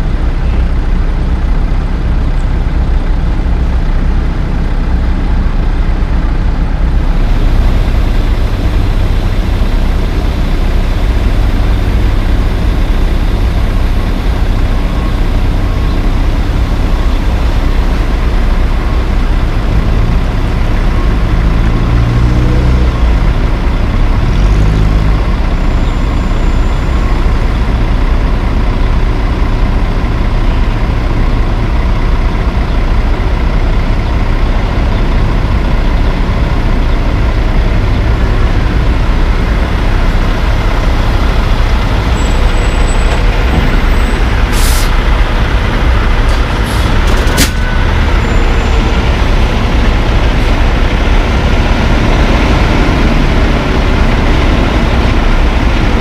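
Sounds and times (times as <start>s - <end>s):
diesel truck engines running: 0.0s - 56.0s.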